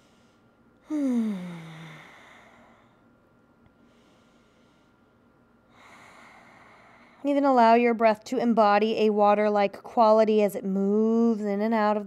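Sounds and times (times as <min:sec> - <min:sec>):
faint breath: 0:00.0 - 0:03.1, 0:03.8 - 0:07.3
woman sighing: 0:00.8 - 0:02.6.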